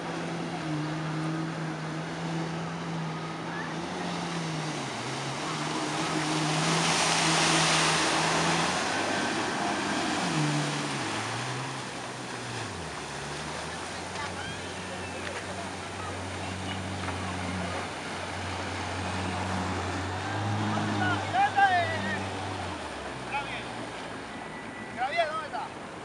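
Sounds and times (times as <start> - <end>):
jet ski engine running: 0.0 - 26.0
water spray rushing: 3.8 - 23.2.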